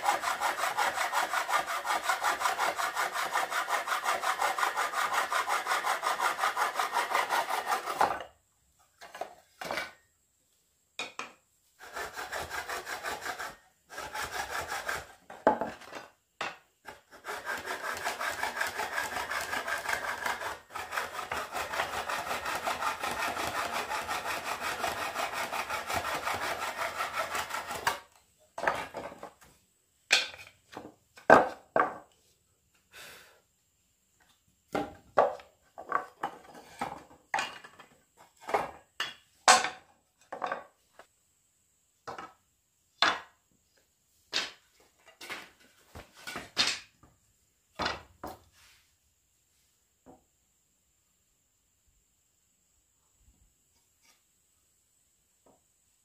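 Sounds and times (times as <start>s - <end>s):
hand saw cutting wood: 0.0s - 8.2s, 11.8s - 16.1s, 16.8s - 28.2s.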